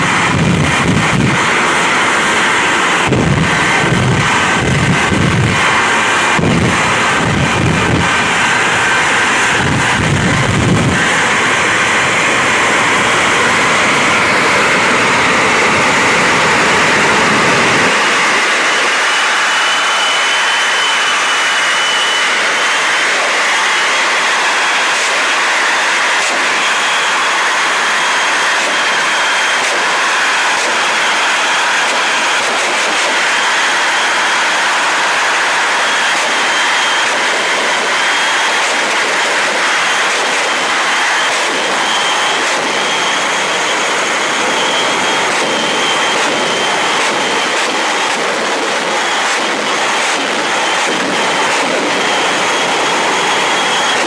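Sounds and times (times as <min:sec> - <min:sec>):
jet engines roaring: 0:00.0 - 0:54.0.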